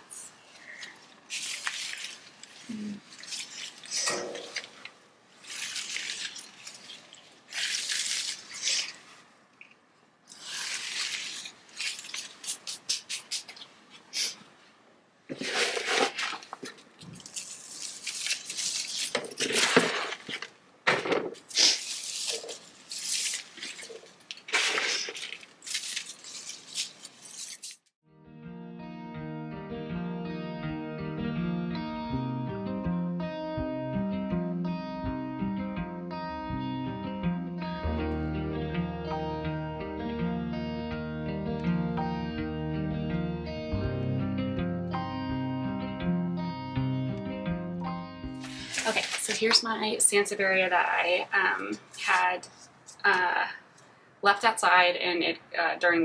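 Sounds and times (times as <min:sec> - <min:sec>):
leaves brushing: 0:00.6 - 0:09.3, 0:10.3 - 0:14.4, 0:15.3 - 0:20.6, 0:21.5 - 0:27.9, 0:48.4 - 0:49.8
soil rustling and scraping: 0:01.3 - 0:04.8, 0:05.4 - 0:09.2, 0:10.3 - 0:12.8, 0:15.3 - 0:20.5, 0:21.6 - 0:27.9, 0:48.5 - 0:49.6.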